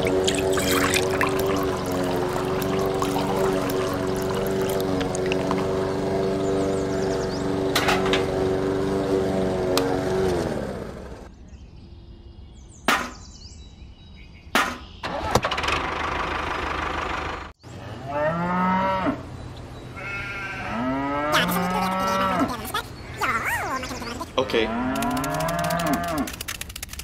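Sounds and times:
motor-like hum: 0.0 - 11.4
sharp knocks: 12.9 - 13.2
cow mooing: 20.0 - 22.5, 24.5 - 26.3.

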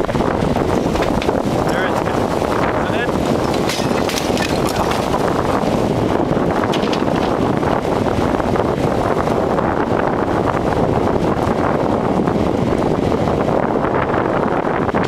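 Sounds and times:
excavator engine running: 0.0 - 13.4
hydraulic breaker hammering concrete: 3.0 - 5.6.

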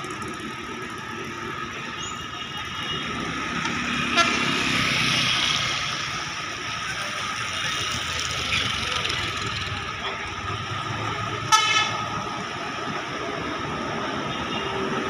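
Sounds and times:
traffic noise: 0.0 - 15.0
motor scooters passing on wet road: 3.4 - 10.0.

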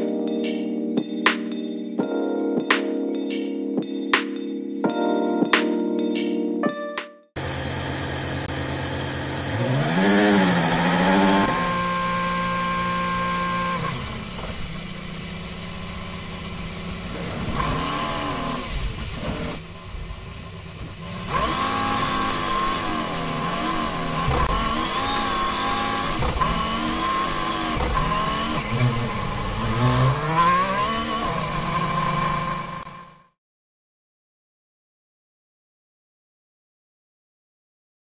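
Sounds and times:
racing car engine revving: 7.4 - 33.2.

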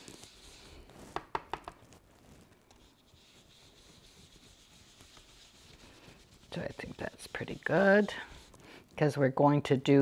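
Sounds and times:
soft brushing on paper: 0.0 - 8.8.

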